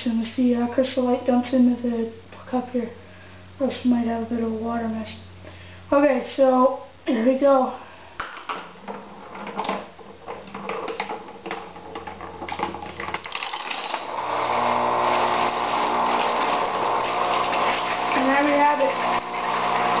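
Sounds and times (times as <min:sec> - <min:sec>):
marble rattling down wooden ramps: 0:08.9 - 0:14.1
pump humming: 0:13.3 - 0:20.0.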